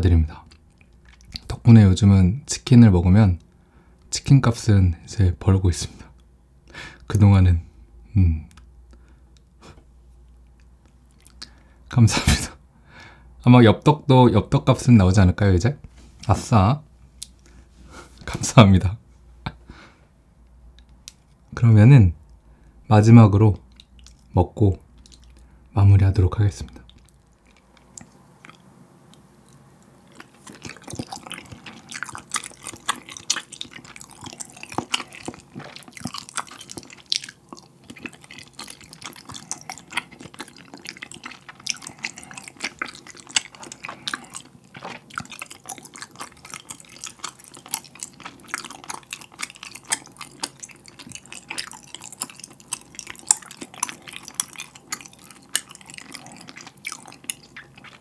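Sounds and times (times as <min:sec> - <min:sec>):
chewing with mouth clicks: 0:00.4 - 0:01.6, 0:08.5 - 0:11.6, 0:23.6 - 0:25.5, 0:26.6 - 0:58.0.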